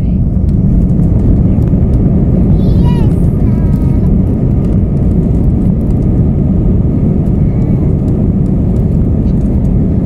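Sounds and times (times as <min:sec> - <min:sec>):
jet engines and wheels rumbling: 0:00.0 - 0:10.0.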